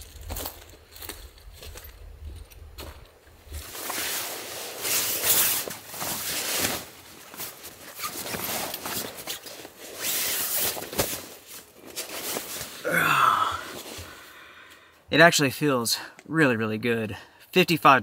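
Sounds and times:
fabric rustling on tarp: 3.4 - 12.9.

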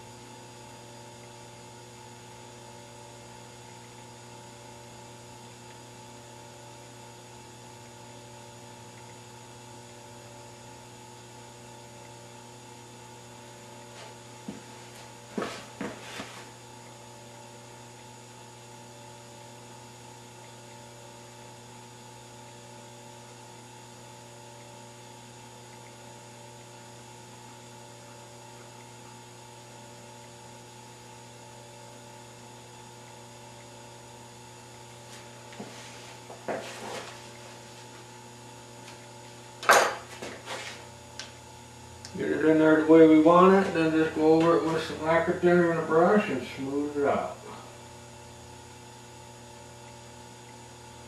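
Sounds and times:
electrical mains hum: 0.0 - 51.0.

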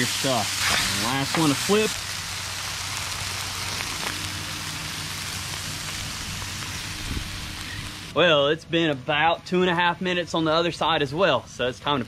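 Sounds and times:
fish sizzling on a griddle: 0.0 - 8.1.

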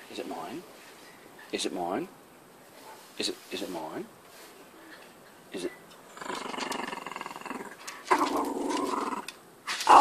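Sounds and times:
dog growling: 6.1 - 10.0.

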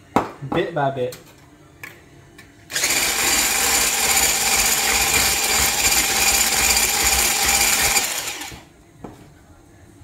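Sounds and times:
electric whisk whirring: 2.7 - 8.7.

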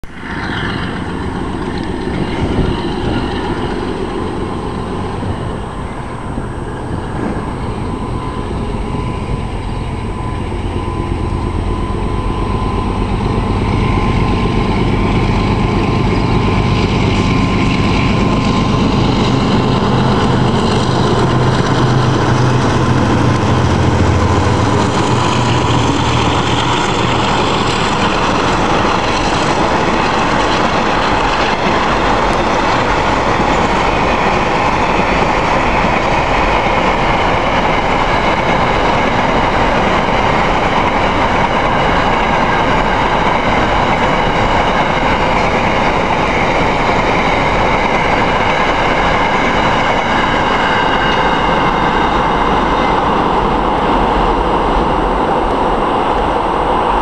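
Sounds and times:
diesel locomotive engines running: 0.0 - 57.0
thin steady whine: 0.8 - 42.0.

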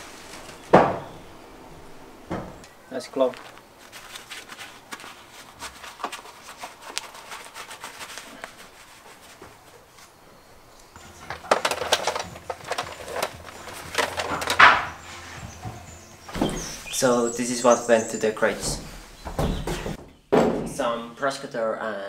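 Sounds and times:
work glove rustling: 2.9 - 10.2, 11.0 - 20.0
tools and crates knocking: 11.0 - 16.8, 18.7 - 20.8.

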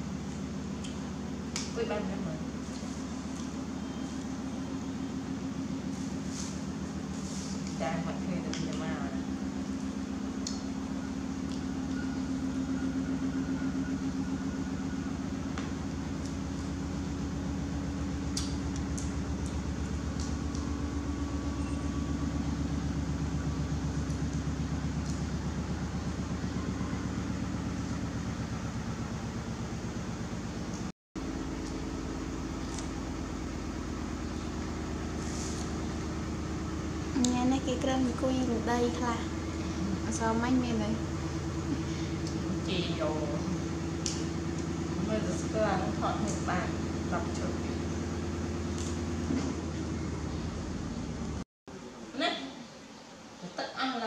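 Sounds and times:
motor humming: 0.0 - 51.4
faint high whine: 1.8 - 6.6, 20.6 - 23.8.

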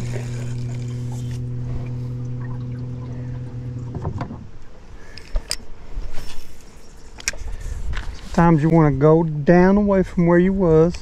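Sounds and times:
electric boat motor humming: 0.0 - 5.6.

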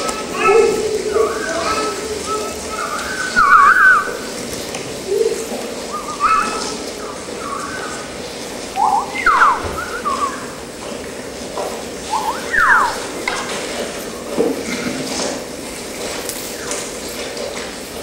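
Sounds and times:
swooping whistles: 1.7 - 4.3, 5.9 - 6.8, 8.8 - 10.6, 12.0 - 13.2
people whistling: 2.3 - 4.2, 8.8 - 10.6, 12.1 - 13.1.

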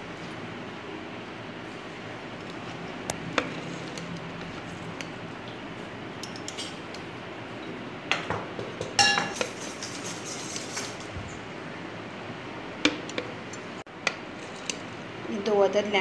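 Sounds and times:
metal squeezer clinking on glass: 9.0 - 11.0.

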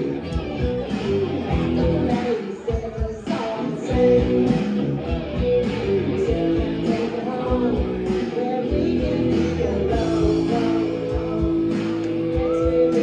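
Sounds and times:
bass guitar: 0.0 - 13.0
drum kit: 0.0 - 13.0
electric guitar: 0.0 - 13.0
woman singing lead: 1.5 - 4.8, 6.0 - 13.0.

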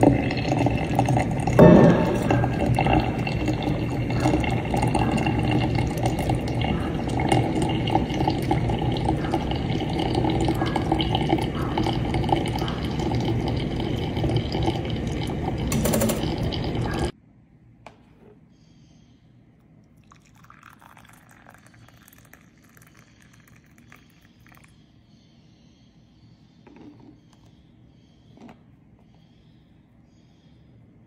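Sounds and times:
water trickling through coffee grounds: 0.0 - 17.1, 19.8 - 24.9.

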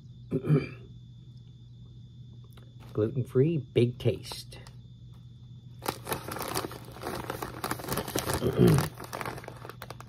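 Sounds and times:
plastic bag crinkling: 5.8 - 10.0.

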